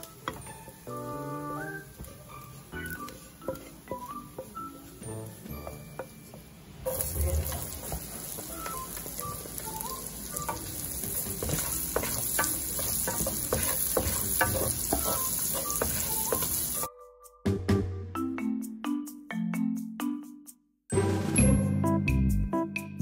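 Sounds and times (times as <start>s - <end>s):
onion sizzling in a pan: 0.0s - 16.9s
wooden spatula scraping a pan: 1.9s - 16.8s.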